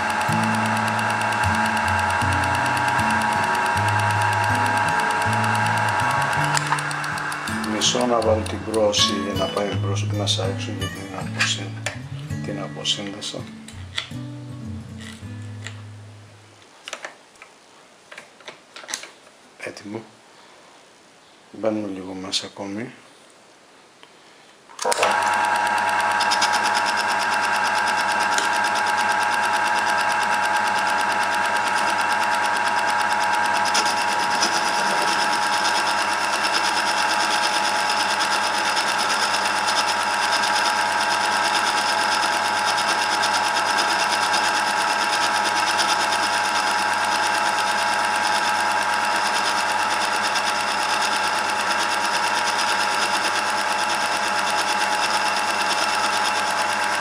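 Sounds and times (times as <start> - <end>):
metal lathe motor whine: 0.0 - 11.7, 24.8 - 57.0
noisy hiss: 7.5 - 24.8.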